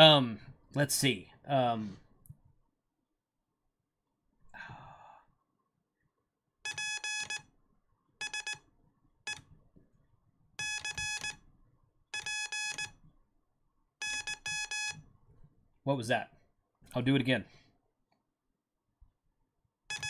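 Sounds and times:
morse code beeps: 6.6s - 7.5s, 8.2s - 8.7s, 10.6s - 11.4s, 12.1s - 13.0s, 14.0s - 15.0s.

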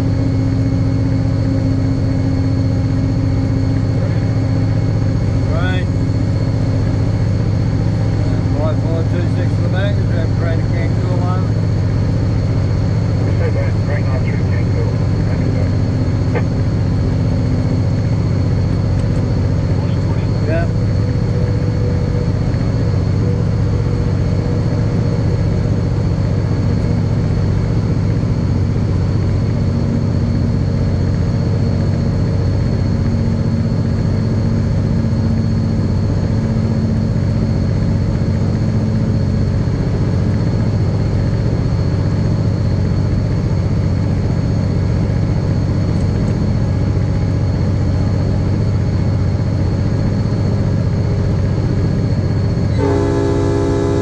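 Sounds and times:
diesel locomotive engine drone: 0.0s - 54.0s
thin high whine: 52.6s - 54.0s.

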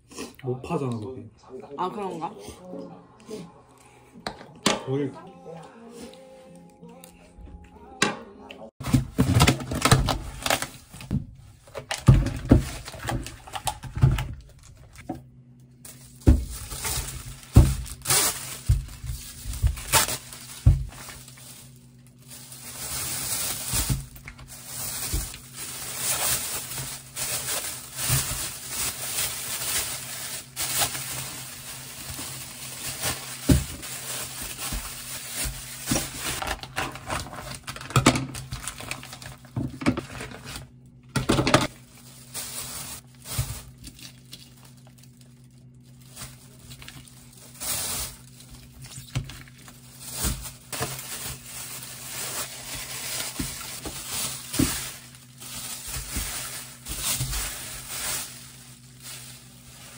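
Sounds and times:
packages knocking on countertop: 8.8s - 10.2s, 11.9s - 14.4s, 16.2s - 21.1s, 32.9s - 36.7s
plastic packaging crinkling: 8.8s - 15.1s, 15.8s - 40.8s, 41.5s - 59.9s.

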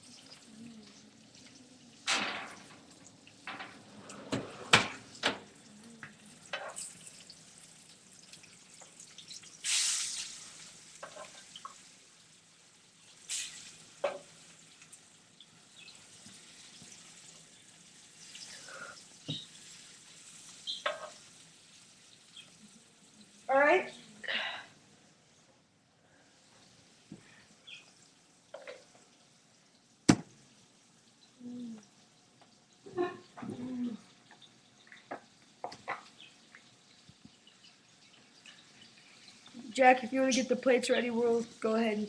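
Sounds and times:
cookware and utensils clinking: 2.0s - 7.4s, 11.0s - 11.8s, 20.6s - 21.3s.

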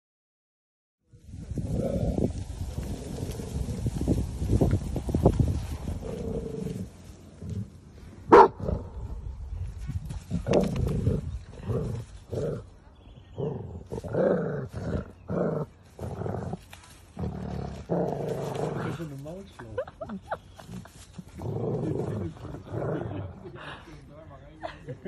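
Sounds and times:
dogs growling: 5.8s - 9.3s, 10.1s - 19.1s, 20.6s - 23.7s.

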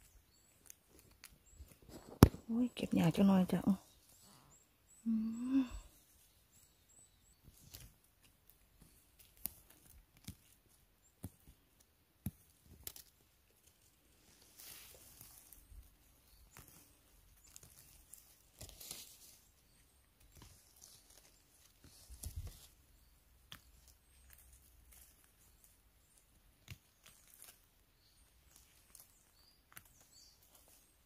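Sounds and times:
rustling of grass and debris: 0.0s - 4.4s, 5.1s - 31.0s
small snaps and clicks: 7.6s - 13.1s.

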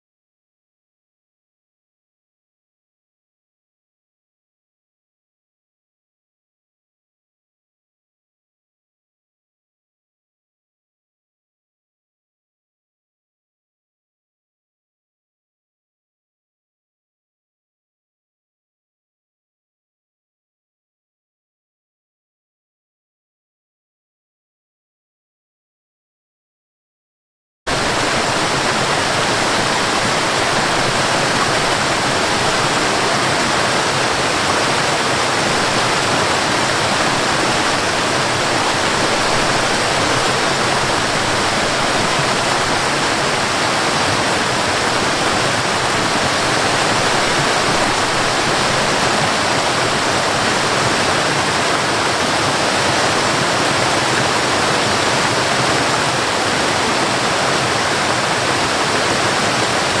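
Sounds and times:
waterfall rushing over rocks: 27.7s - 60.0s.

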